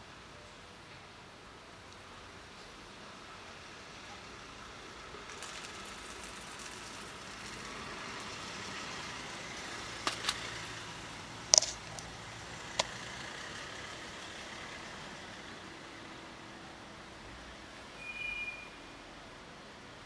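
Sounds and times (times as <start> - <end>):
traffic noise: 0.0 - 20.0
kibble pouring onto stony ground: 5.3 - 7.8, 11.5 - 12.1.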